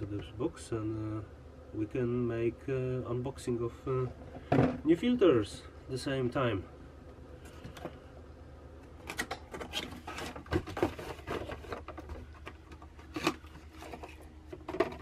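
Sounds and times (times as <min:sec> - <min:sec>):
low steady hum: 0:00.0 - 0:15.0
cardboard rustling and scraping: 0:09.0 - 0:15.0.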